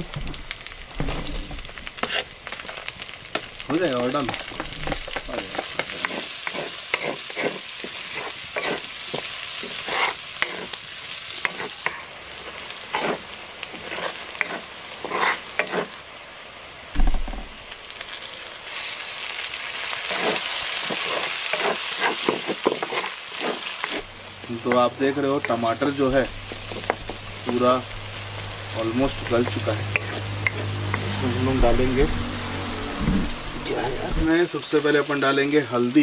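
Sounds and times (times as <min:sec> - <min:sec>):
masala sizzling in oil: 0:00.0 - 0:36.0
wooden spatula scraping a pan: 0:01.2 - 0:02.3, 0:04.2 - 0:12.0, 0:12.9 - 0:16.0, 0:20.0 - 0:27.9
dull thump: 0:17.0 - 0:17.5, 0:33.0 - 0:33.3.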